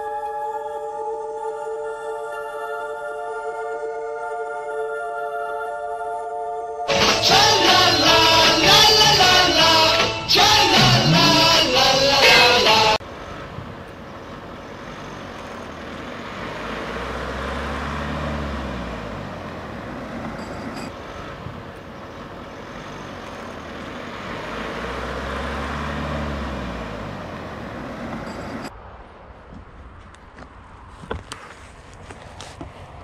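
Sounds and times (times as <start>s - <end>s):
steady traffic rumble: 6.9s - 33.0s
vehicles passing: 6.9s - 33.0s.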